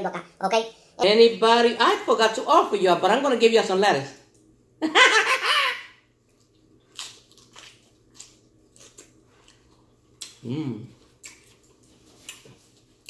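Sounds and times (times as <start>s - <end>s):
person laughing: 4.8s - 6.0s
crisp chewing crunches: 6.3s - 10.4s.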